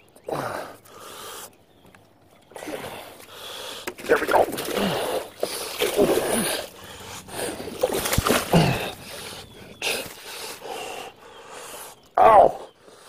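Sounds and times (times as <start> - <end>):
fish splashing at the surface: 4.2 - 9.2.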